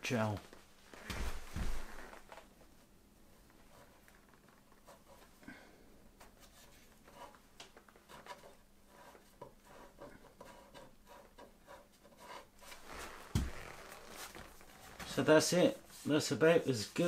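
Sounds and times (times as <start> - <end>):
wooden stick scraping wood: 8.0 - 17.0.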